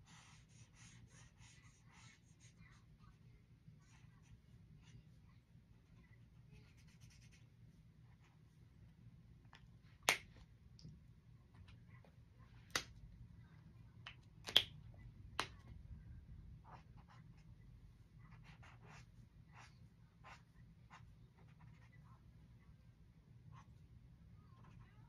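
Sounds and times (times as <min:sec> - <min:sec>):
markers scratching on paper: 0:00.0 - 0:03.2, 0:05.9 - 0:07.5, 0:16.6 - 0:17.6, 0:18.2 - 0:22.2
marker caps clicking: 0:14.4 - 0:14.8.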